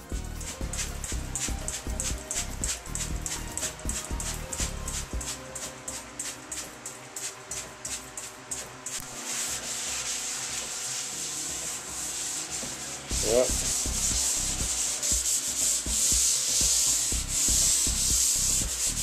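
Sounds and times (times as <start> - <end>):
scrubbing pad scouring bathtub: 7.2 - 19.0.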